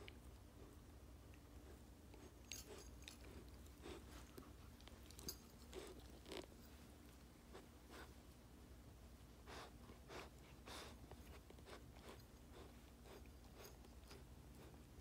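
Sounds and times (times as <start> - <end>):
puppy chewing on toy: 1.3 - 6.6.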